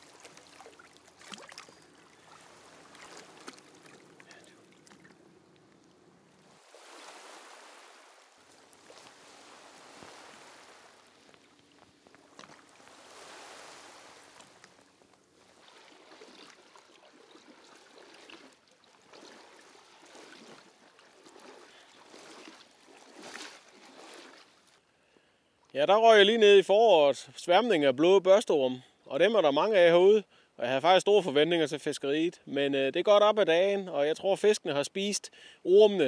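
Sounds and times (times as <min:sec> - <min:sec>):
legs splashing through water: 0:00.0 - 0:24.8
seawater lapping: 0:00.0 - 0:24.9.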